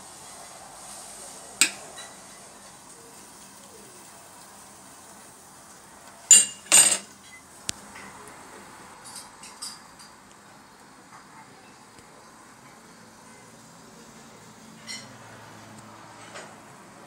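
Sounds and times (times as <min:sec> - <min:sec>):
faint steady hiss: 0:00.0 - 0:17.0
metal spoon clinking on plate: 0:01.6 - 0:02.2, 0:06.3 - 0:07.4, 0:14.8 - 0:15.1.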